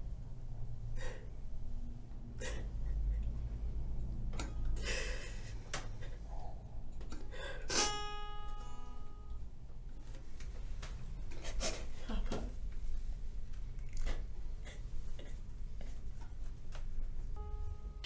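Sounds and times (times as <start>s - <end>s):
woman sobbing: 4.8s - 6.2s
balalaika chord ringing: 7.8s - 9.4s, 17.4s - 18.0s.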